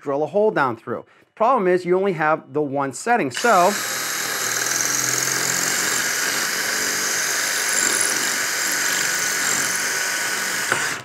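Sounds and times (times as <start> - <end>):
cordless drill grinding into block: 3.4 - 11.0.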